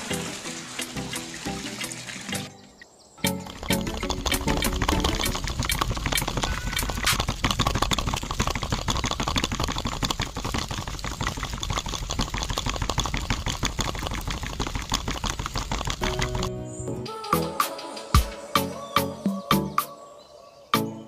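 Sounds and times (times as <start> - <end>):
toy mixer clicking rattle: 3.2 - 16.5.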